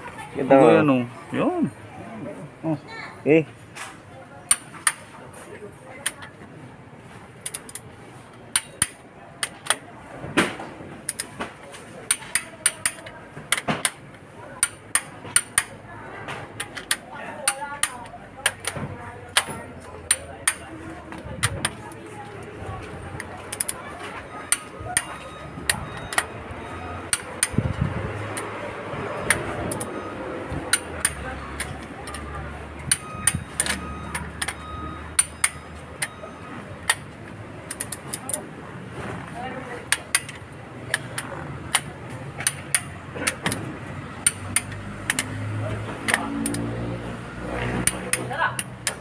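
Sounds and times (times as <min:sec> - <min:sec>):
torque wrench clicking: 0:08.5 - 0:09.8, 0:12.1 - 0:14.0, 0:14.6 - 0:15.8, 0:16.6 - 0:20.7, 0:27.1 - 0:28.5, 0:29.2 - 0:30.0, 0:30.7 - 0:32.3, 0:39.9 - 0:43.6, 0:44.2 - 0:45.4, 0:46.0 - 0:46.7, 0:47.8 - 0:49.0.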